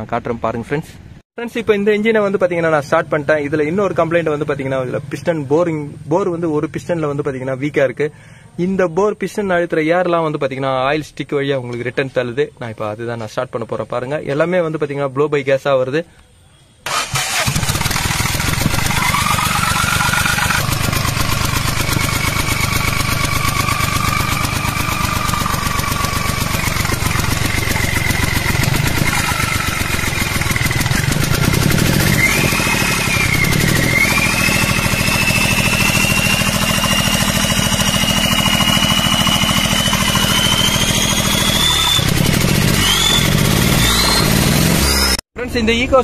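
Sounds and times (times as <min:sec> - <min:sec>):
petrol engine running: 0:16.9 - 0:45.1
high whine: 0:17.9 - 0:45.8.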